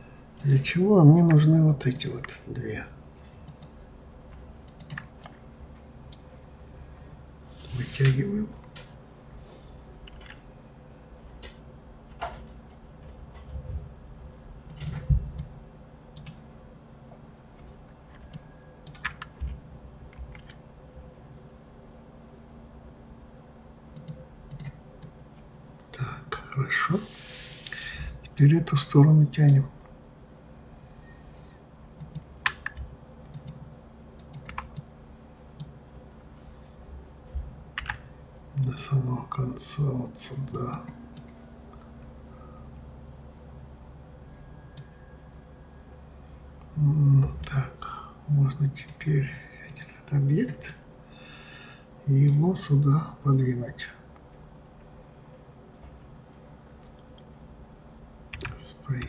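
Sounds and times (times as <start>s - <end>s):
faint electrical hum: 0.0s - 59.0s
keyboard and mouse clicks: 3.4s - 5.4s, 14.7s - 15.6s, 16.2s - 16.4s, 17.6s - 20.6s, 23.9s - 25.2s, 32.0s - 33.6s, 34.2s - 34.9s, 37.8s - 38.1s, 58.3s - 59.0s
keyboard key presses: 4.7s - 5.4s, 18.1s - 20.6s
mouse clicks: 23.9s - 25.2s, 32.0s - 33.6s.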